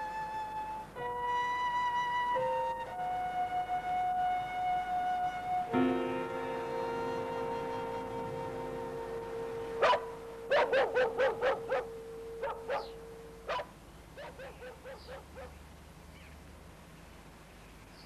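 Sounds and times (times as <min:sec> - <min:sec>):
sustained musical chord: 0:05.3 - 0:13.5
dog barking and yelping: 0:09.8 - 0:15.6.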